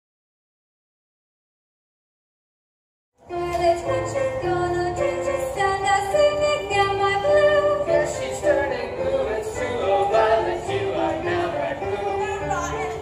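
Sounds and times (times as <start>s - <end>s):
electronic keyboard melody: 3.2s - 13.0s
voices singing along: 3.3s - 13.0s.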